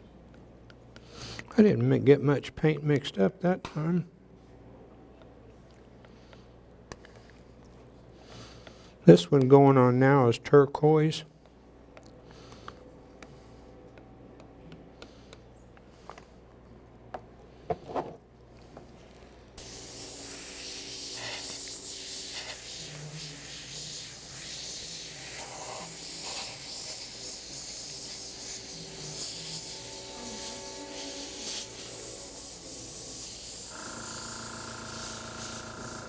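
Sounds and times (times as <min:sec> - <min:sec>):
airbrush spraying hiss: 0:19.6 - 0:36.0.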